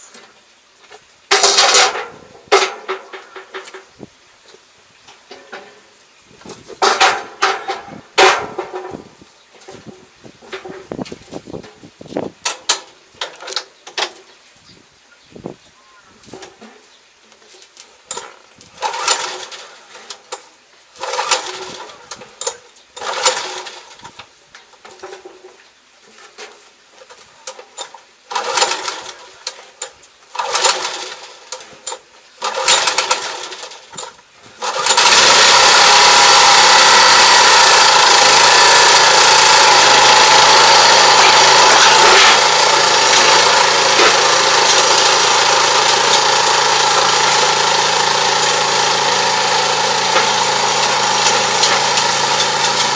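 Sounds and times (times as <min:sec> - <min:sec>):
starter cord pulls: 0:01.3 - 0:03.8, 0:06.4 - 0:09.0, 0:17.8 - 0:25.5, 0:26.1 - 0:52.9
small engine running: 0:18.8 - 0:19.8, 0:21.0 - 0:22.4, 0:23.0 - 0:24.0, 0:28.3 - 0:29.4, 0:30.4 - 0:31.6, 0:32.4 - 0:33.9, 0:34.6 - 0:52.9.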